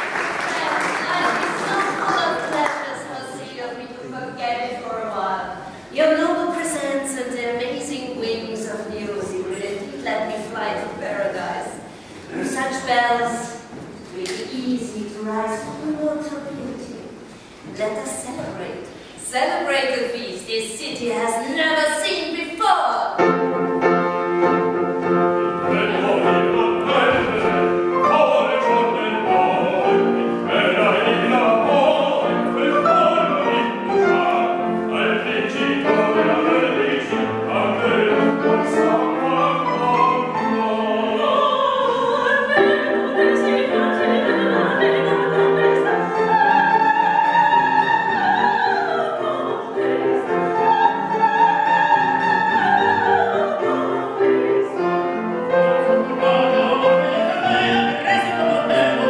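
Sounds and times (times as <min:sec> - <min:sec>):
opera singers singing: 0:00.0 - 0:13.7, 0:25.0 - 0:59.0
instrumental accompaniment: 0:23.2 - 0:59.0.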